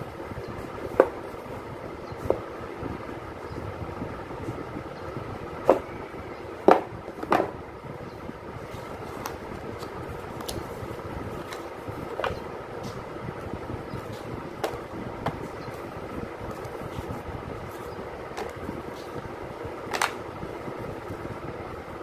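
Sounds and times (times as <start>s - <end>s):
steady background rumble: 0.0s - 22.0s
taps and knocks on cardboard box: 0.9s - 1.2s, 6.6s - 7.6s.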